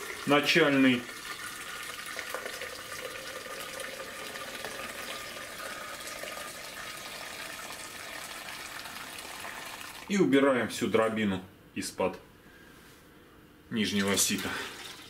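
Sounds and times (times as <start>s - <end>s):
liquid streaming into plastic jug: 0.0s - 10.1s, 14.0s - 15.0s.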